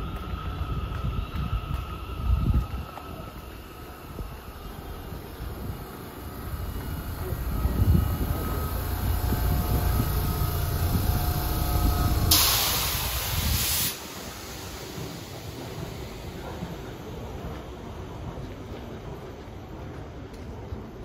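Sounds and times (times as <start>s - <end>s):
train rumbling with motor whine: 0.0s - 21.0s
loud air hiss: 3.8s - 16.9s.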